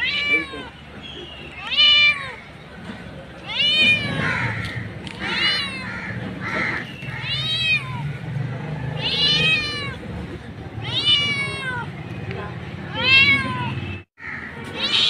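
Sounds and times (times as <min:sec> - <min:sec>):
cat meowing: 0:00.0 - 0:00.8, 0:01.6 - 0:02.4, 0:03.4 - 0:08.2, 0:08.9 - 0:10.1, 0:10.7 - 0:11.9, 0:12.8 - 0:14.0, 0:14.6 - 0:15.0.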